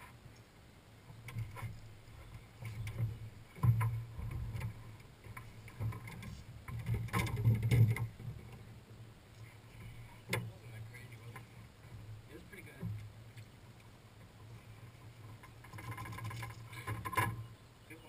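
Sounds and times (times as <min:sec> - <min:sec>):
knocks and thumps on boat deck: 0:01.3 - 0:08.5.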